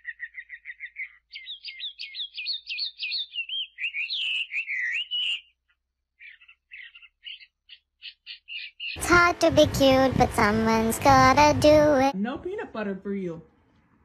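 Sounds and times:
songbird singing: 0:00.0 - 0:09.0.

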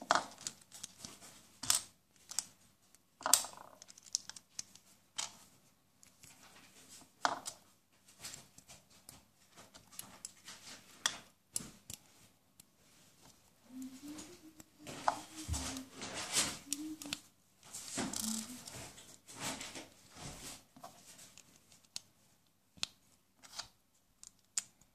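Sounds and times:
plastic bricks clicking together: 0:03.2 - 0:05.4.

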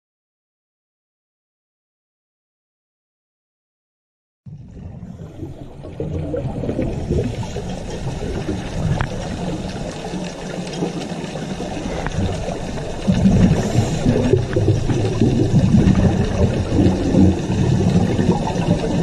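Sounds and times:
underwater rumble of moving water: 0:04.5 - 0:19.0.

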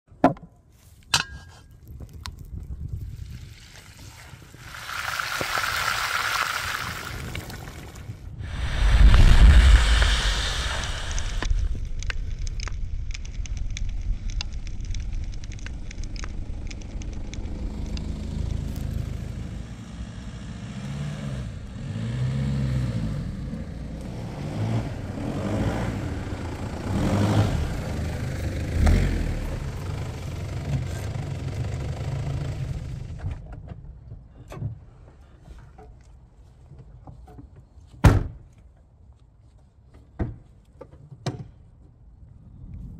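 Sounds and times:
twigs and leaves crackling under tyres: 0:00.7 - 0:19.7
suv engine revving: 0:14.4 - 0:33.1.

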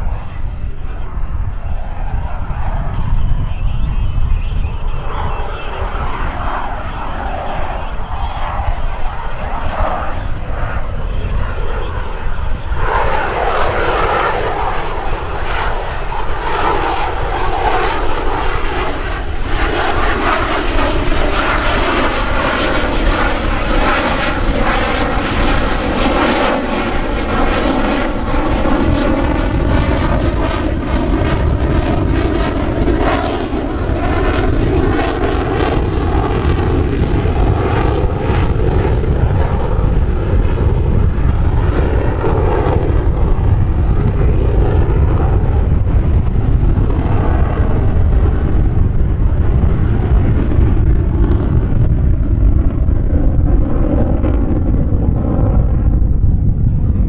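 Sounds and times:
jet engine roar: 0:00.0 - 0:57.0.

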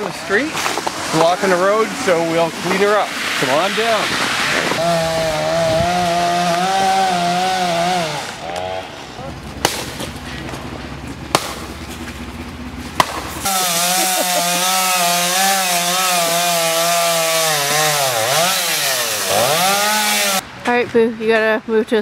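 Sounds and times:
chainsaw cutting: 0:00.0 - 0:10.0, 0:13.0 - 0:20.4.

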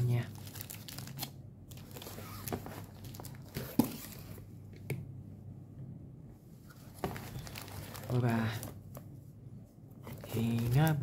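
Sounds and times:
books rustling in cardboard box: 0:00.4 - 0:04.4, 0:06.7 - 0:08.9, 0:10.0 - 0:11.0.

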